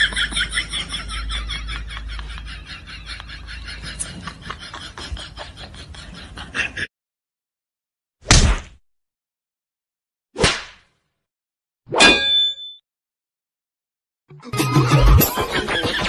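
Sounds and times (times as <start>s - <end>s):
rapid laughter: 0.0s - 6.9s, 14.4s - 16.0s.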